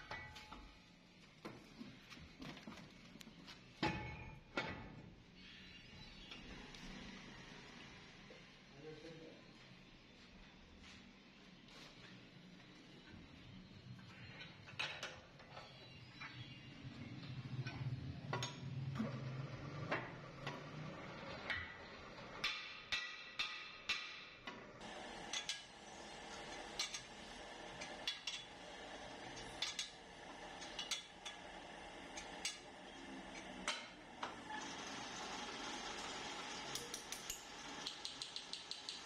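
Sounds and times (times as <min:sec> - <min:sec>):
metal clanks and taps: 0:03.8 - 0:05.0, 0:17.6 - 0:19.1, 0:22.4 - 0:24.6, 0:26.8 - 0:27.1, 0:30.6 - 0:31.4
steady machine hum: 0:24.8 - 0:36.8.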